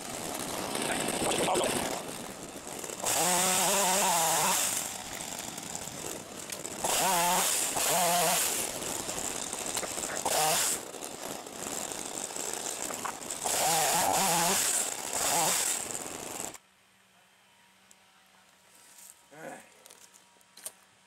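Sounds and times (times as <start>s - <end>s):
chainsaw revving while cutting: 0.0s - 16.6s.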